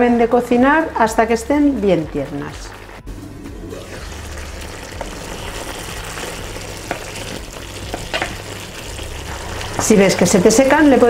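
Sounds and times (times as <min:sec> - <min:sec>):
meatballs sizzling in a pan: 0:03.8 - 0:11.0.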